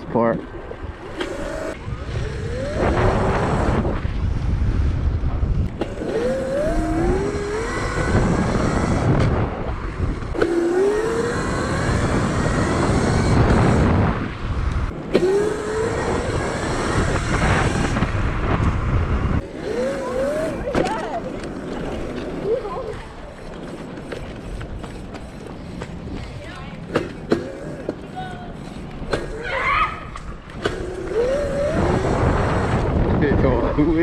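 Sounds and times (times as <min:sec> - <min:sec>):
wind and tyre noise: 0:00.0 - 0:34.0
electric motor whining: 0:01.1 - 0:04.0, 0:05.7 - 0:18.8, 0:19.4 - 0:22.0, 0:30.6 - 0:32.9.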